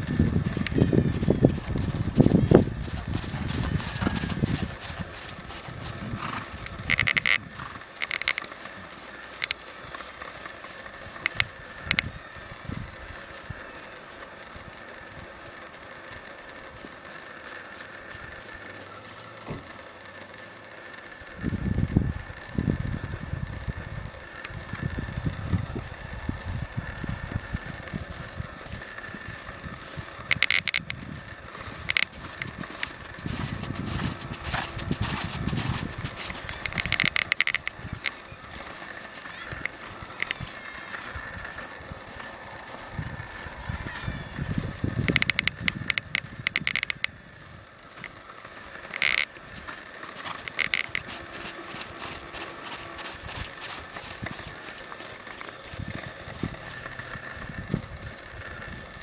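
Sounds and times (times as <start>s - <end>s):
hoofbeats on sand: 0.0s - 7.8s, 31.1s - 41.8s, 49.4s - 59.0s
tack rattling: 0.0s - 12.1s, 30.2s - 43.6s, 48.7s - 58.5s
short bursts of noise: 0.0s - 47.3s, 48.0s - 59.0s.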